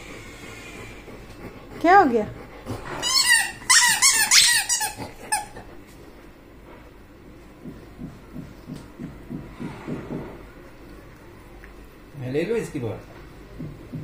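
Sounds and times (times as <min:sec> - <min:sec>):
high-pitched toy squeaks: 0:03.0 - 0:05.0
dog chewing squeaky toy: 0:03.0 - 0:05.6.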